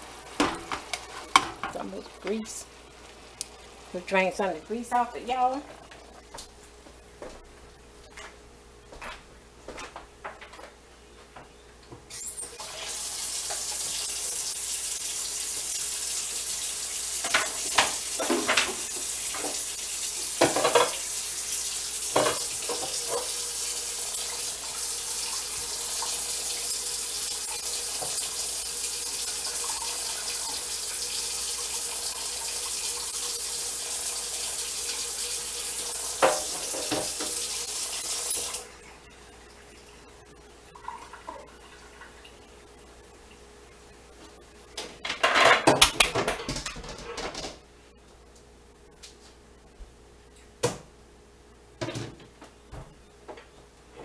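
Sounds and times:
kitchen faucet running: 12.1s - 38.8s.

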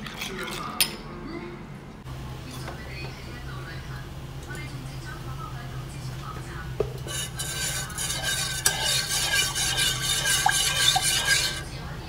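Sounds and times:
steady low hum: 1.5s - 12.0s
metal spoon scraping saucepan: 7.0s - 11.7s.

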